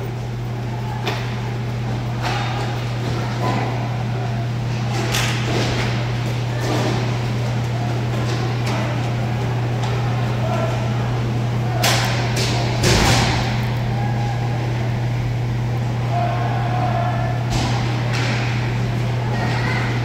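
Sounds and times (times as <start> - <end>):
distant voices of players: 0.0 - 20.0
low building hum: 0.0 - 20.0.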